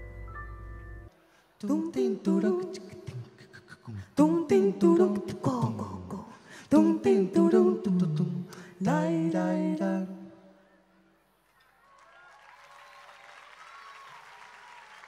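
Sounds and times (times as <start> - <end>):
person singing and humming: 1.6 - 10.3.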